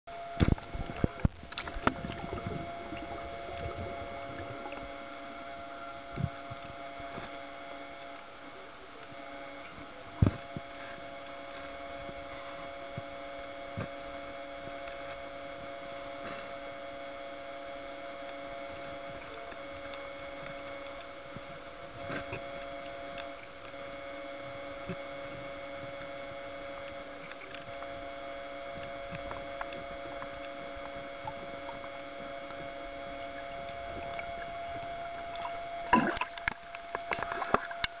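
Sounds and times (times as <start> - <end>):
steady underwater hum: 0.1 - 38.0
water splashing and sloshing: 0.4 - 5.4, 28.8 - 38.0.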